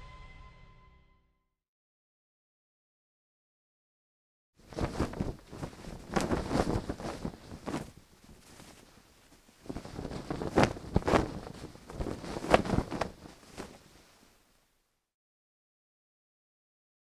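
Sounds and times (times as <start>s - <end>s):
flag flapping and snapping: 4.6s - 14.3s.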